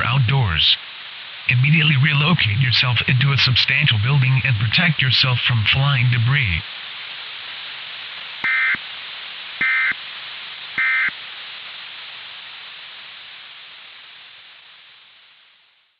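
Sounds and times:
radio static hiss: 0:00.0 - 0:15.9
buzzy digital data bursts: 0:08.0 - 0:08.8.

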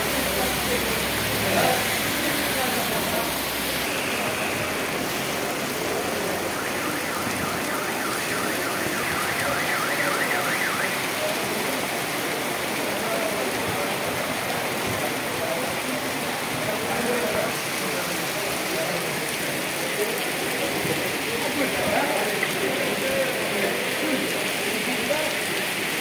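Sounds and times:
rain falling on street and cars: 0:00.0 - 0:26.0
car alarm sweeping: 0:06.4 - 0:11.2.

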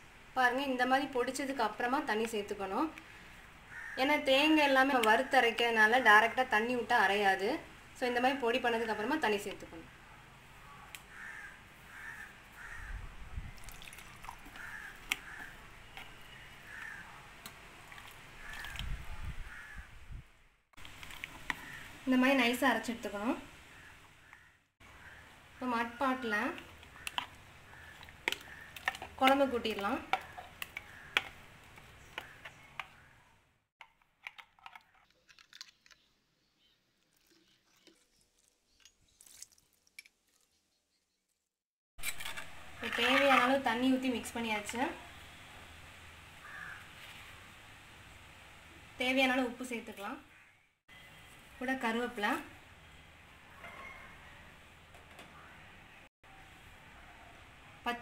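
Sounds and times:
water pouring into jar: 0:13.5 - 0:15.1, 0:17.8 - 0:18.8, 0:37.0 - 0:40.4
spatula scraping mixer jar: 0:42.0 - 0:43.6.

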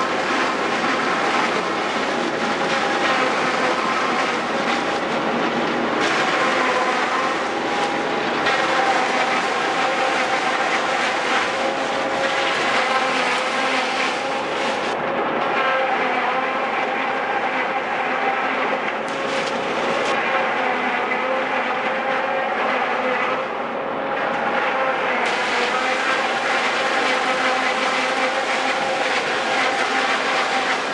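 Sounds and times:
forage harvester chopping corn: 0:00.0 - 0:15.8, 0:19.0 - 0:20.4, 0:25.2 - 0:30.9.

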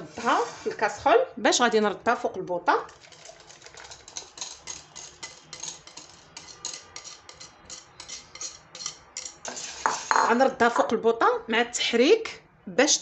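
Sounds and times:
whisk clicking against bowl and pan: 0:02.9 - 0:09.6.

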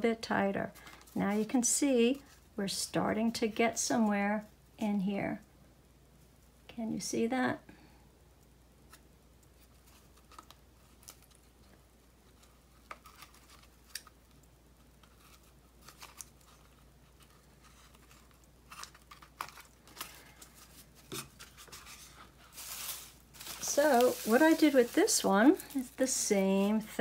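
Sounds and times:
yarn rustling on loom: 0:19.8 - 0:27.0.

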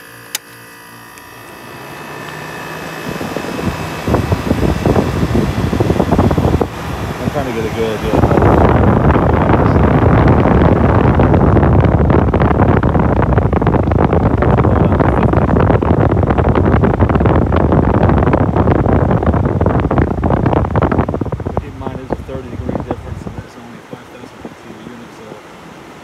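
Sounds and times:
blower fan whooshing: 0:00.0 - 0:26.0.

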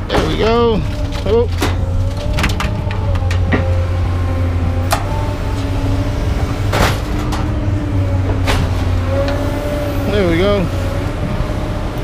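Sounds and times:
scrap metal knocks and clanks: 0:00.1 - 0:03.9, 0:06.6 - 0:07.6.

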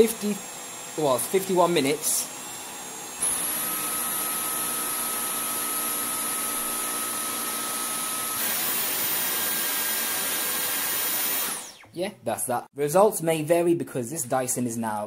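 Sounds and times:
vacuum cleaner motor whining: 0:00.0 - 0:12.0.

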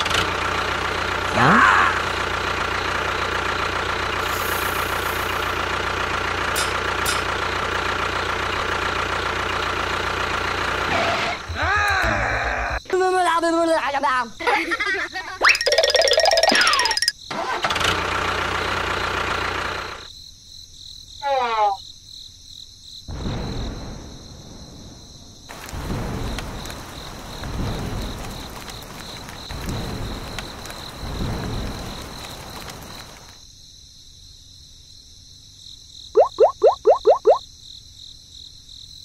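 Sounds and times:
rain hissing: 0:01.1 - 0:09.1, 0:23.2 - 0:33.4
crickets chirping: 0:01.1 - 0:10.6, 0:11.6 - 0:17.3, 0:20.0 - 0:39.0.

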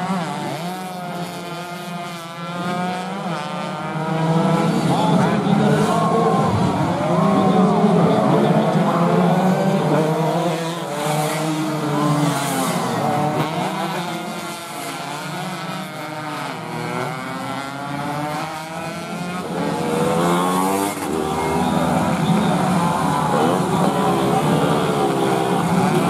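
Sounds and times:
racing motorcycles revving past: 0:00.0 - 0:26.0.

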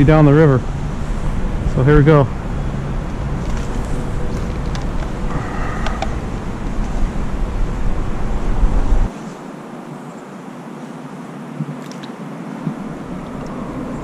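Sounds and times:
wind buffeting microphone: 0:00.0 - 0:09.1.

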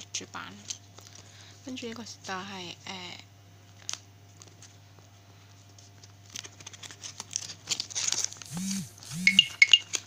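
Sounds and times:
plastic sleeves crinkling: 0:05.7 - 0:08.5.

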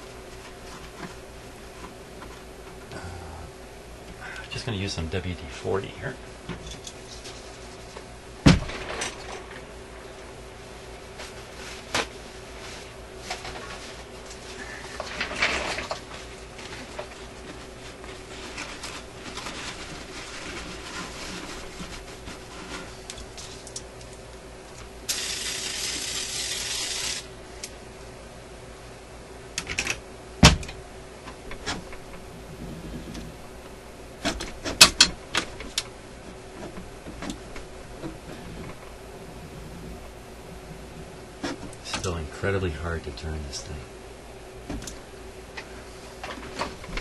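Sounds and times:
paper towel rubbing on metal: 0:17.4 - 0:23.1.

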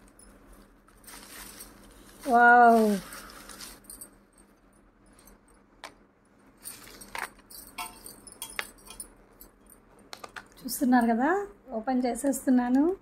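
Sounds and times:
shredded paper rustling: 0:00.9 - 0:04.0.

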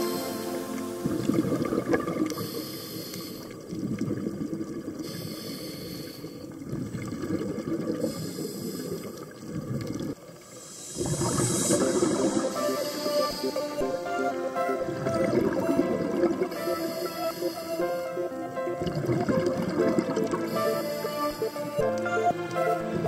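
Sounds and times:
regulator breathing hiss: 0:00.0 - 0:01.1, 0:02.3 - 0:03.6, 0:05.0 - 0:06.5, 0:08.0 - 0:09.2, 0:10.5 - 0:14.2, 0:16.5 - 0:18.3, 0:20.4 - 0:21.8
exhaled bubbles rumbling: 0:00.0 - 0:02.4, 0:03.6 - 0:05.0, 0:06.5 - 0:08.2, 0:09.2 - 0:12.9, 0:14.8 - 0:16.9, 0:18.3 - 0:20.6.

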